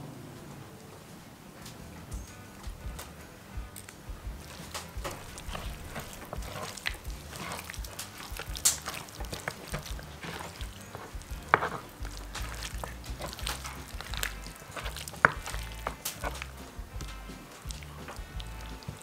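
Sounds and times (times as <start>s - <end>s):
wet meat squelching and slapping: 4.3s - 19.0s.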